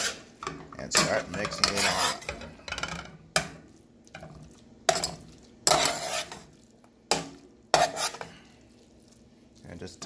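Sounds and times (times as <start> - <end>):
utensil knocking and scraping pan: 0.0 - 3.6, 4.9 - 6.5, 7.1 - 8.3.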